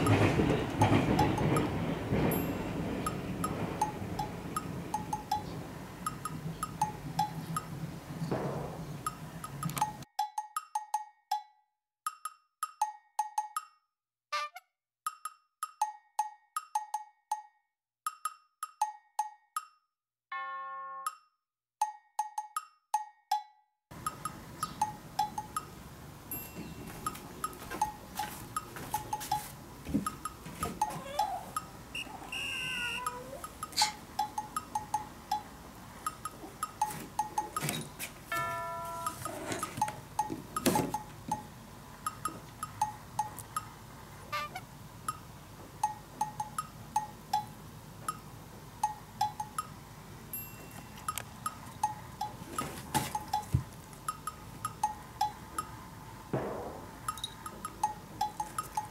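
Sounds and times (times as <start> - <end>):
playful plinking percussion music: 0.8 - 7.8, 9.1 - 13.9, 15.1 - 29.5, 30.1 - 43.8, 44.4 - 52.4, 53.0 - 55.8, 57.0 - 58.9
low background noise: 23.9 - 58.9.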